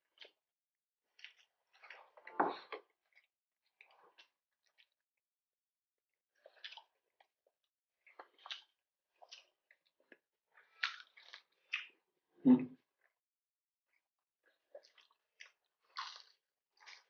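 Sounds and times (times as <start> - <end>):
wet chewing: 8.0 - 11.9, 14.7 - 17.0
crunching of crispy food: 10.6 - 11.9, 14.8 - 17.0.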